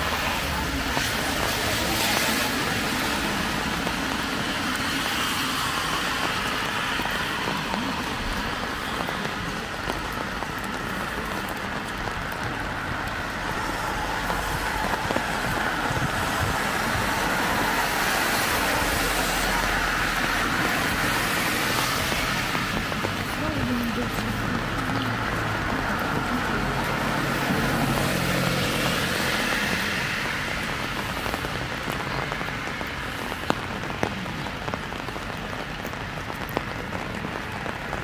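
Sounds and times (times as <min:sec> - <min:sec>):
cars passing on wet road: 0:00.0 - 0:38.0
rain on a street: 0:00.0 - 0:38.0.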